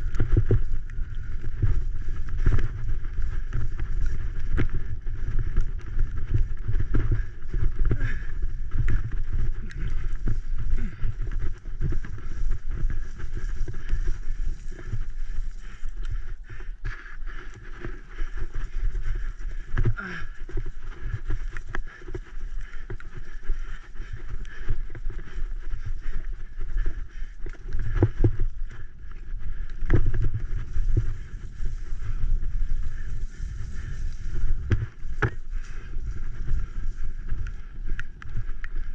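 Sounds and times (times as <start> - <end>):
wind and tyres rumbling: 0.0 - 38.9
bicycle knocks and rattles: 34.5 - 35.9.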